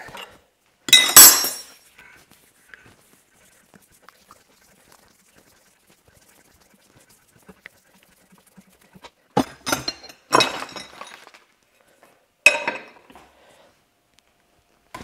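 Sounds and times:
sharp metallic clink: 0.9s - 1.8s.

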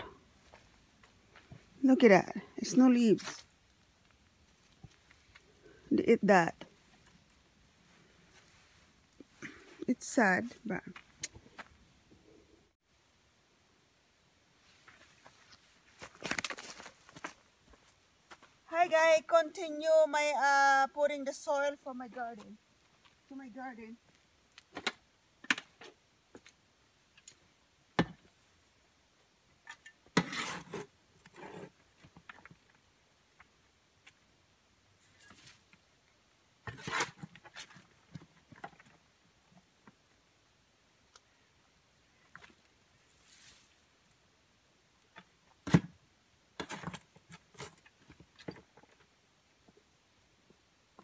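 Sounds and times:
shovel scraping soil: 29.7s - 31.8s, 36.6s - 37.9s.

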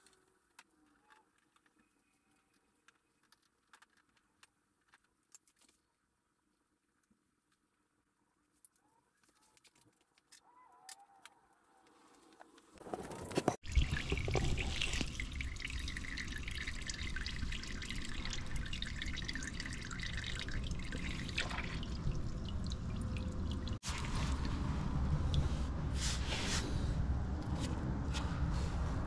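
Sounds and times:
oil draining in a stream: 13.6s - 25.6s.

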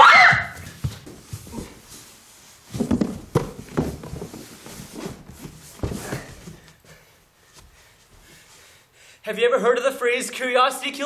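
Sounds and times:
thumps and knocks in cardboard box: 2.6s - 7.0s.

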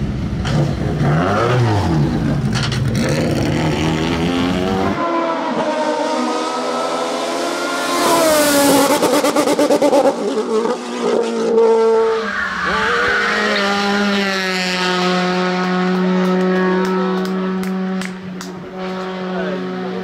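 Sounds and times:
race car revving: 0.0s - 20.0s
race car passing at high revs: 0.8s - 20.0s
tyre squeal: 12.1s - 14.3s.

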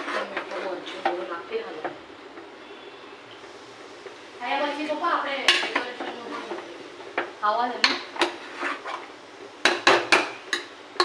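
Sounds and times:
metal ladle clanking on pot: 5.5s - 6.1s.

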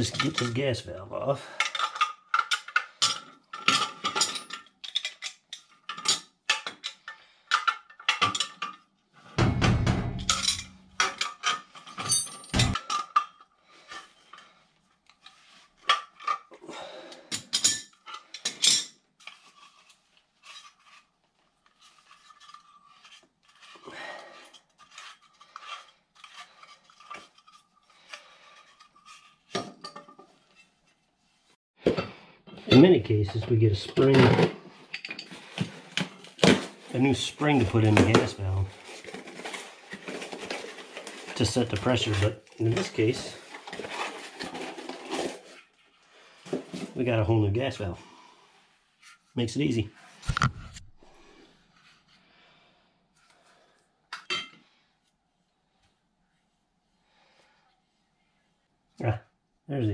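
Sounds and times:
wrenches clanking on metal pipe: 0.0s - 0.6s, 9.4s - 13.4s
heavy thud: 9.4s - 10.3s.

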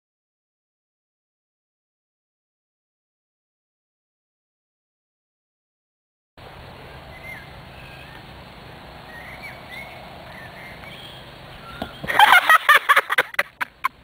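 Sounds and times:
birds chirping: 6.4s - 14.0s
loud rhythmic laughter: 12.1s - 14.0s.

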